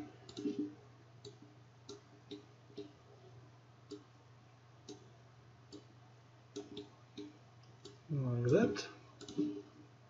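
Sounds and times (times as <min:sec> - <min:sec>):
low steady hum: 0:00.0 - 0:10.0
computer mouse clicks: 0:00.2 - 0:03.0, 0:03.9 - 0:04.1, 0:04.8 - 0:05.1, 0:05.7 - 0:05.9, 0:06.5 - 0:08.0, 0:09.2 - 0:09.6.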